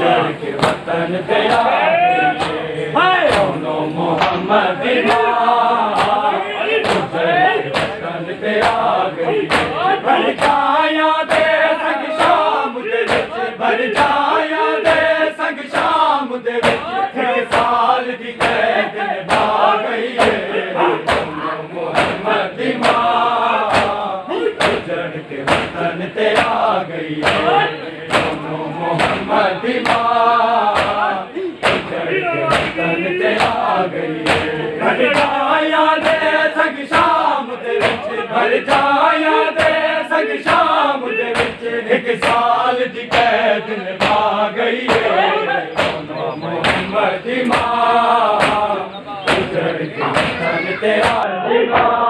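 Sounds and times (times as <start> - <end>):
men chanting in unison: 0.0 - 52.0
chest-beating slaps: 0.6 - 0.9, 4.2 - 4.4, 5.9 - 6.2, 6.8 - 7.1, 7.7 - 8.0, 9.5 - 10.6, 13.0 - 14.2, 16.6 - 17.8, 18.4 - 18.7, 19.3 - 19.6, 21.0 - 27.5, 28.1 - 30.1, 30.7 - 35.4, 37.8 - 38.1, 41.3 - 42.5, 43.1 - 43.4, 44.0 - 44.3, 44.9 - 51.2.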